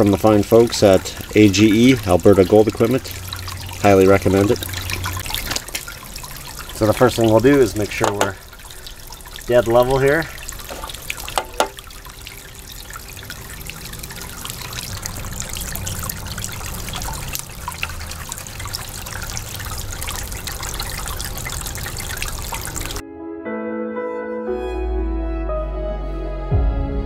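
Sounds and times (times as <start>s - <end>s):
water dripping: 0.0s - 23.0s
water trickling and splashing: 0.0s - 23.0s
small knocks: 8.0s - 8.4s, 10.6s - 11.8s
background music: 23.0s - 27.0s.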